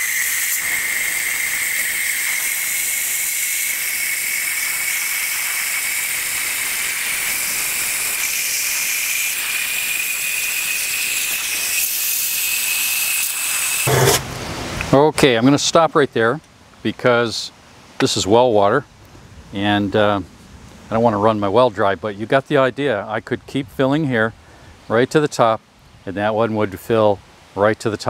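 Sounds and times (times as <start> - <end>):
hose water filling drum: 0.0 - 14.9.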